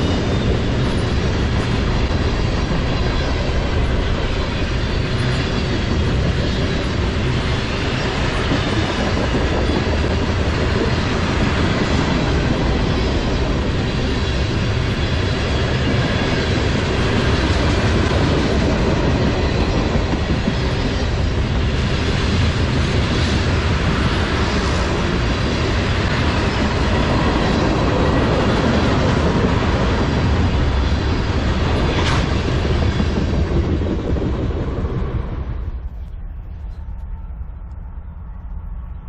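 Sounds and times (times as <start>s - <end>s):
train wheels rumbling and rattling: 0.0s - 39.0s.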